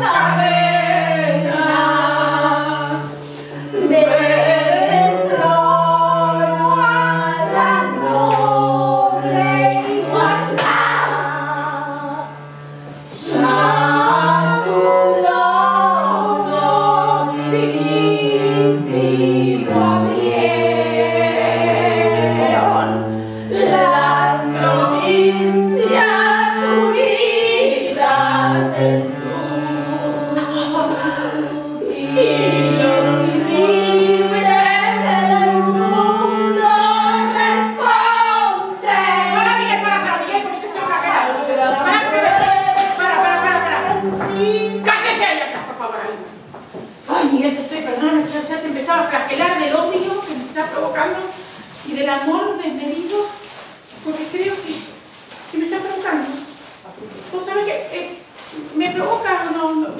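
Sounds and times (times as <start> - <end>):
woman singing: 0.0 - 12.4, 13.2 - 45.7
cello bowed low notes: 0.0 - 45.5.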